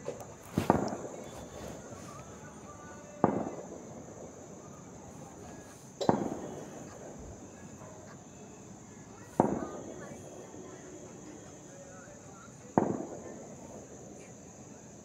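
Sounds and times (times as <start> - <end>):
sharp bangs with echo: 0.0 - 2.5, 3.2 - 4.7, 5.9 - 7.2, 9.4 - 10.2, 12.8 - 13.4.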